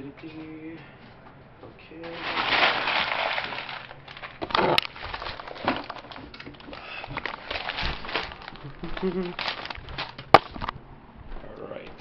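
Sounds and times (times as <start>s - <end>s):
rustling and scraping: 2.0s - 10.8s.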